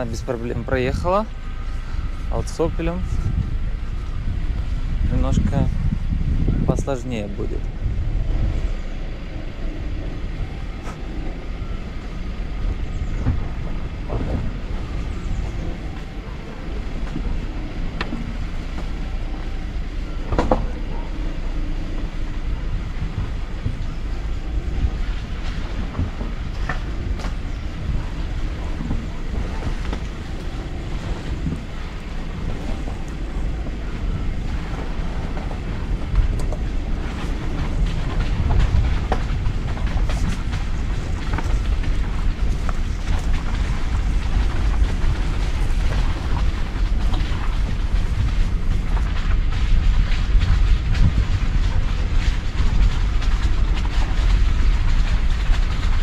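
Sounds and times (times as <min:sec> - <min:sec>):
car engine running at low revs: 0:00.0 - 0:56.0
wind buffeting microphone: 0:00.0 - 0:56.0.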